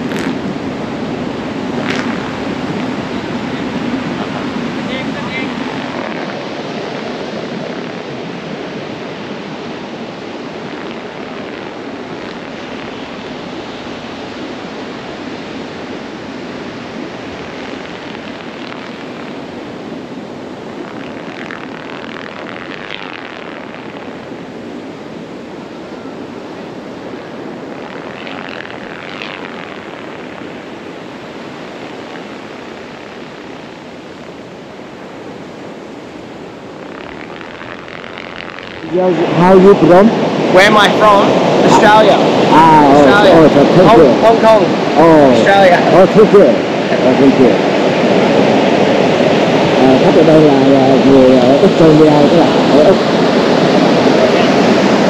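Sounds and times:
wind noise: 0.0 - 55.0
kite whistling: 10.0 - 39.1.

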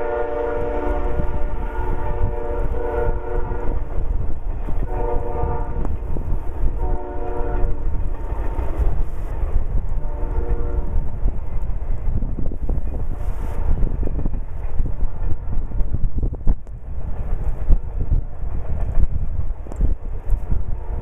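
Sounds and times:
locomotive air horn blasts: 0.0 - 3.8, 4.8 - 6.0, 6.8 - 7.8, 10.0 - 11.0
rumble of rolling freight cars: 0.0 - 21.0.

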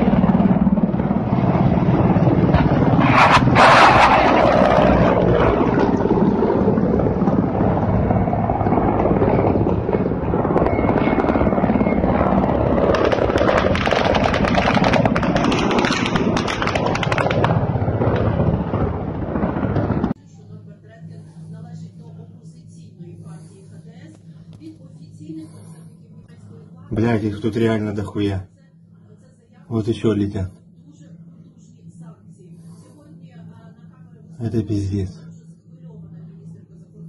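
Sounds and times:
helicopter rotor and engine: 0.0 - 28.5
loud rush of noise: 2.3 - 5.4.

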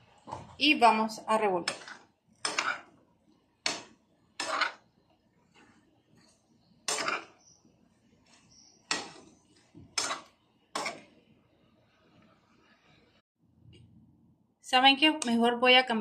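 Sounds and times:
metal spoon scraping frying pan: 1.6 - 3.0, 3.6 - 4.9, 5.5 - 7.6, 8.2 - 11.2.

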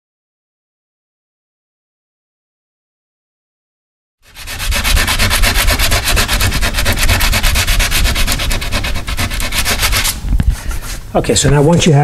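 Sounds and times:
sandpaper scraping metal door: 4.2 - 11.8.

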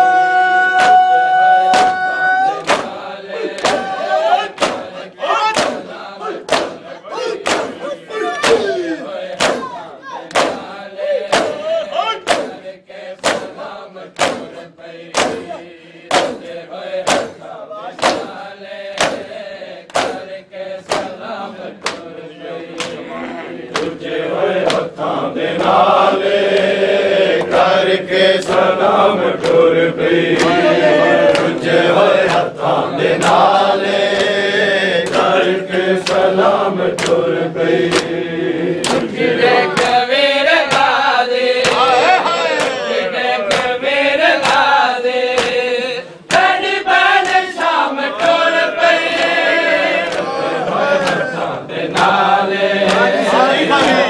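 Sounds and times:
crowd chanting: 0.0 - 54.0
person reciting: 0.0 - 54.0
hands beating chests: 0.6 - 22.1, 22.7 - 24.0, 30.2 - 34.4, 36.0 - 38.2, 38.8 - 40.0, 40.6 - 45.7, 46.3 - 54.0.

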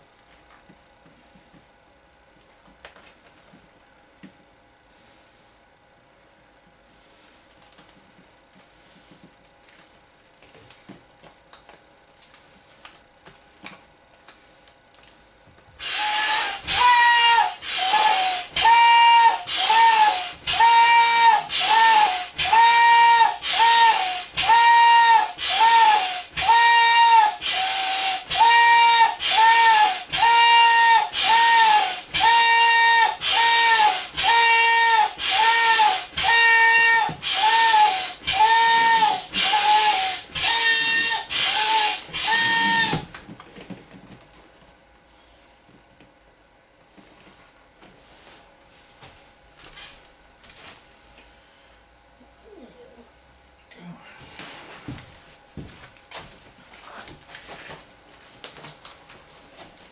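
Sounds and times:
hand pump strokes with hissing air: 15.8 - 43.1.

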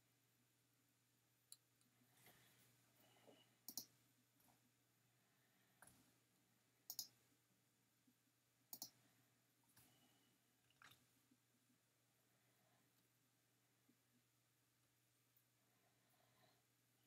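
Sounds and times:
low steady hum: 0.0 - 17.0
computer mouse clicks: 3.6 - 3.9, 6.9 - 7.2, 8.7 - 9.0.

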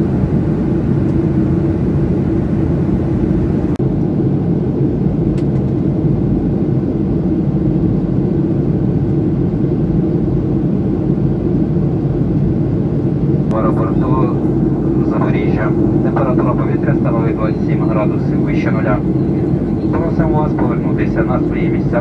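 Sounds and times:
airliner cabin engine rush: 0.0 - 22.0.

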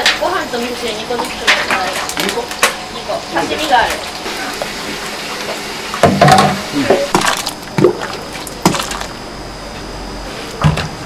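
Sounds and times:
soup pouring and splashing: 3.8 - 9.2.

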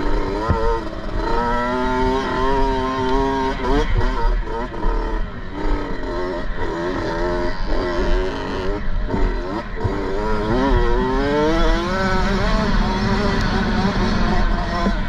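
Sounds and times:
two-stroke motorcycle engine revving: 0.0 - 15.0.

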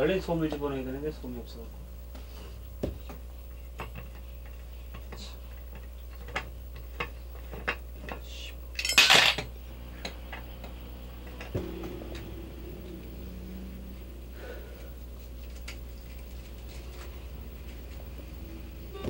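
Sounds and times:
metal parts rattling clatter: 8.8 - 9.5.

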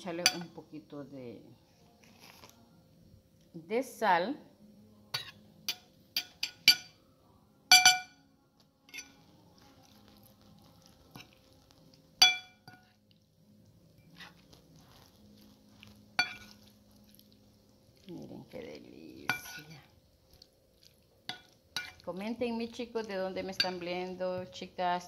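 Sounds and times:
metal spoon clinking on ceramic bowl: 0.2 - 0.5, 5.2 - 7.0, 7.7 - 8.2, 8.9 - 9.2, 12.2 - 13.0, 16.2 - 16.6, 19.3 - 19.8, 21.3 - 22.0.

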